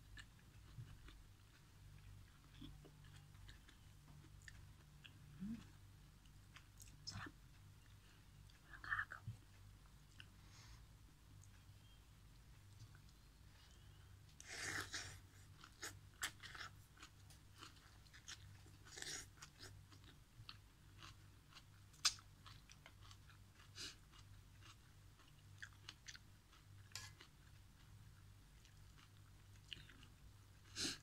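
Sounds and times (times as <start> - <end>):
wet chewing and crunching: 14.5 - 31.0.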